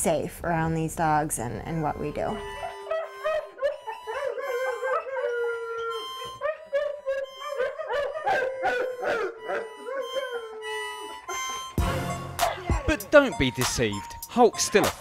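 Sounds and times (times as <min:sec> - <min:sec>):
harmonica notes: 0:01.0 - 0:15.0
dog howling: 0:02.4 - 0:13.0.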